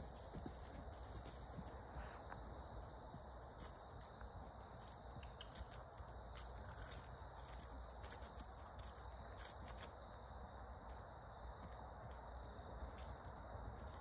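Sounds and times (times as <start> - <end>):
horse hoofbeats on dirt: 0.0 - 9.6
crickets trilling: 0.0 - 14.0.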